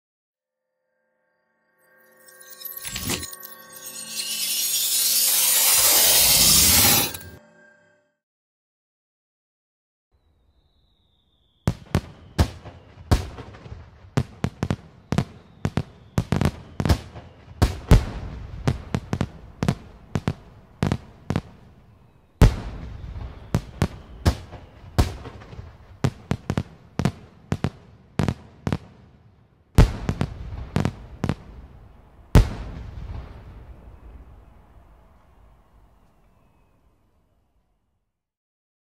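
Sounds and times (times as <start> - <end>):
fireworks bangs: 11.6 - 29.2, 29.8 - 35.4.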